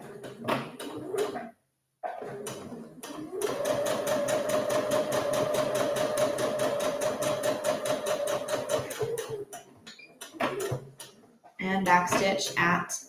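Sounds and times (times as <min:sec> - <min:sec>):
sewing machine stitching: 0:02.1 - 0:09.6, 0:10.2 - 0:11.2.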